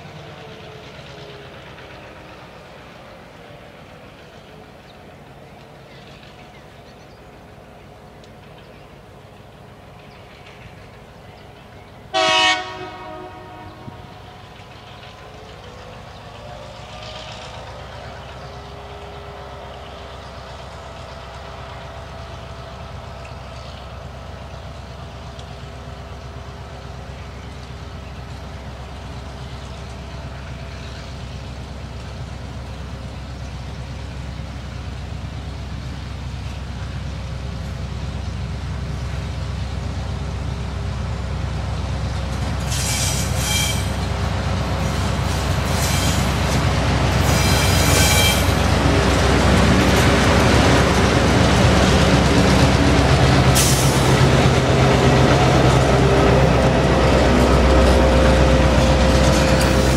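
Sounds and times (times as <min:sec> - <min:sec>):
diesel locomotive engines: 0:00.0 - 0:59.9
train horn blasts: 0:12.1 - 0:14.1, 0:42.8 - 0:44.0, 0:47.2 - 0:48.7.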